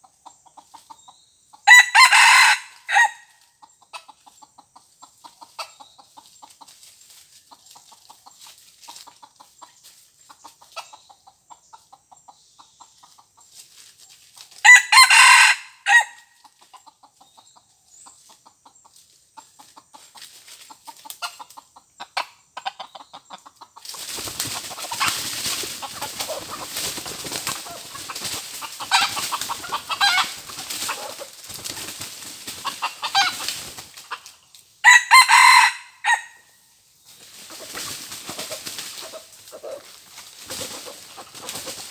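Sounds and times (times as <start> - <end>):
rooster crowing: 1.7 - 3.3, 14.6 - 16.2, 34.8 - 36.4
soft clucking: 3.6 - 6.8
rustling in dry leaf litter: 23.8 - 34.7, 37.0 - 41.9.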